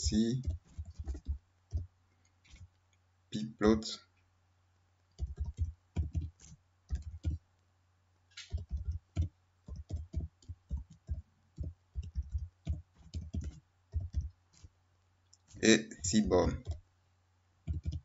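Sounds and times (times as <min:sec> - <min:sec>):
keyboard key clicks: 0:08.4 - 0:14.3, 0:17.7 - 0:18.0.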